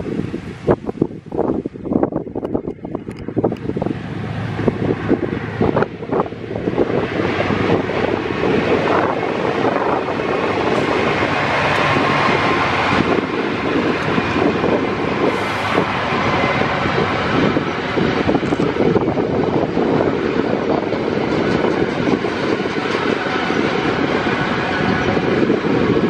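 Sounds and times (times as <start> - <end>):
diesel locomotives passing: 0.0 - 26.0.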